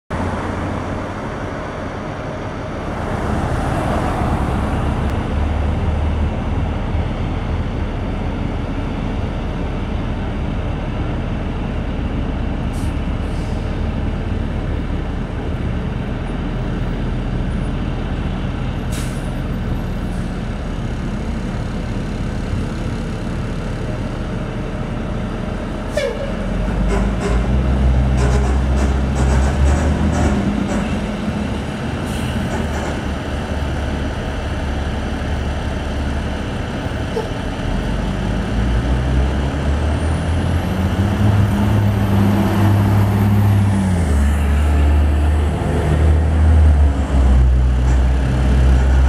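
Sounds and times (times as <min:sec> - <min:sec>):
diesel engine rumbling: 0:00.1 - 0:49.0
air brake hissing: 0:18.9 - 0:19.3.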